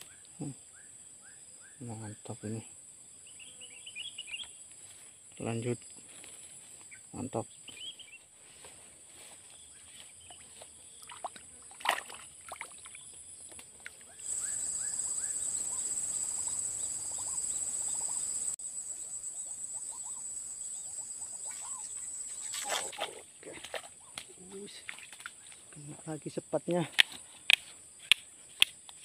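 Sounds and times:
high-pitched insect drone: 14.2 - 23.0.

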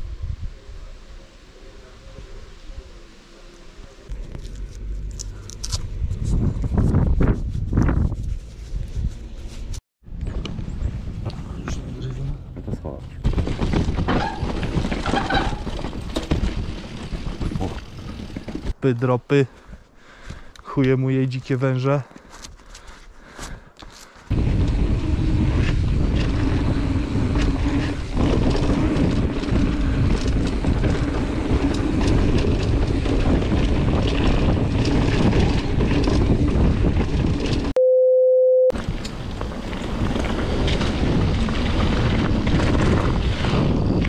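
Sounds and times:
wind rushing over microphone: 0.0 - 1.2, 5.6 - 14.9, 24.3 - 37.7, 38.8 - 44.0
bike tyres and frame rattling: 12.5 - 18.8, 22.1 - 37.7, 38.8 - 44.0
test-tone beep: 37.8 - 38.7.

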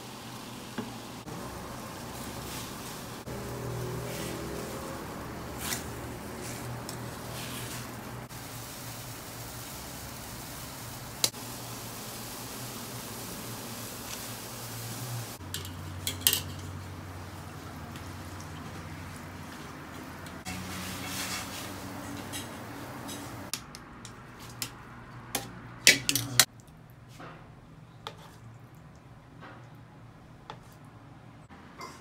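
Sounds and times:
steady hiss and hum: 0.0 - 17.5
utensils clanking on pans: 15.4 - 16.8, 20.5 - 23.5.

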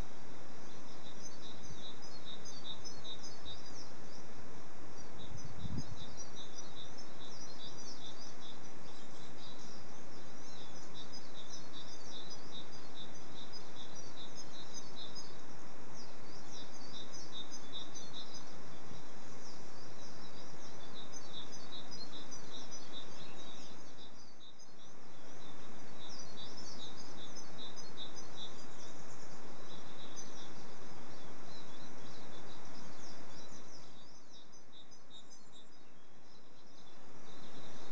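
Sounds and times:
background hiss: 0.0 - 37.9
small birds twittering: 0.0 - 37.9.

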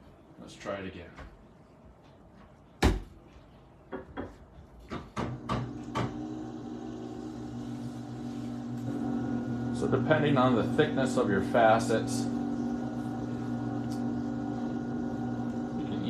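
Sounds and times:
electric motor humming: 5.4 - 16.0.

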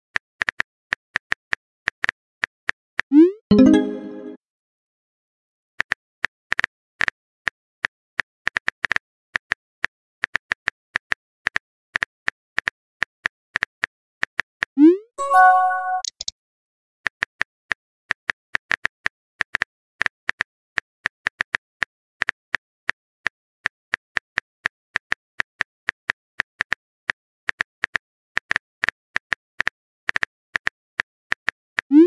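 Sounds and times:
phone keyboard typing clicks: 15.2 - 16.3.

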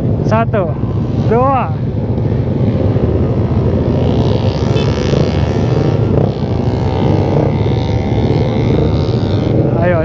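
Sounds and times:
motorcycle engines running: 0.0 - 10.0.

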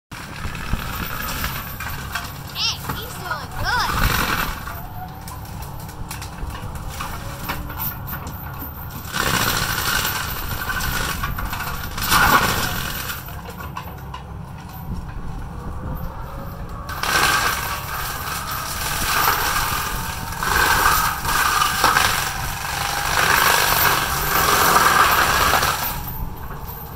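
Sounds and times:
excavator diesel engine rumbling: 0.1 - 26.9
cutting head working at trees: 0.2 - 14.0, 14.6 - 26.9.

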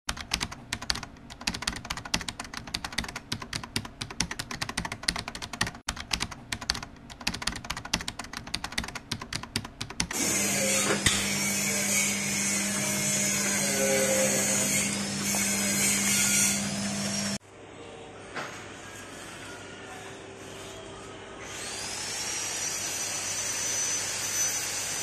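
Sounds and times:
rapid keyboard typing: 0.1 - 10.2
slicing machine humming and hissing: 10.1 - 17.4.

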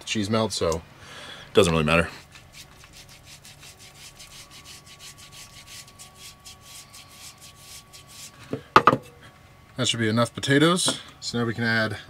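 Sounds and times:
potato rasping on a grater: 2.2 - 8.4.

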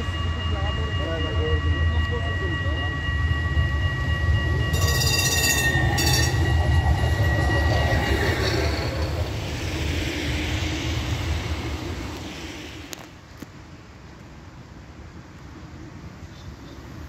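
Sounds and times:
high whine: 0.0 - 13.5
tram wheels rumbling on rail: 0.0 - 14.4.

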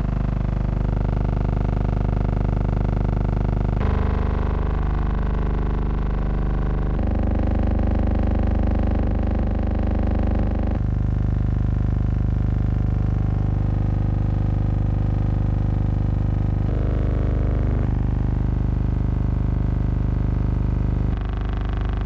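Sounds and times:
hum of held even tones: 0.0 - 1.8, 2.8 - 11.5, 16.4 - 22.0.

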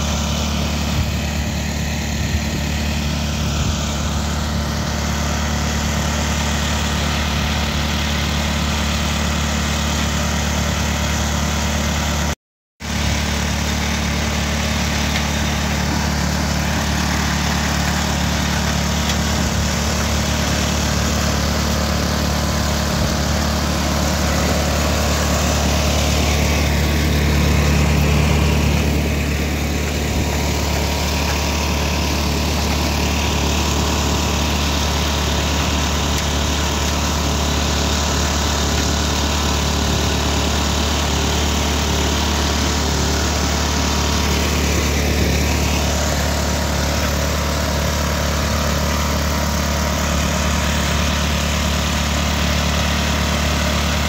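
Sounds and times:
low engine hum: 0.0 - 54.0
threshing machine rattling: 12.8 - 54.0.

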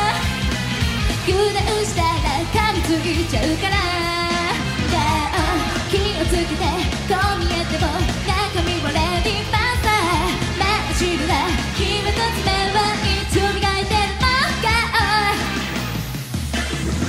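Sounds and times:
pop backing music: 0.0 - 17.0
woman singing into microphone: 1.3 - 15.5.

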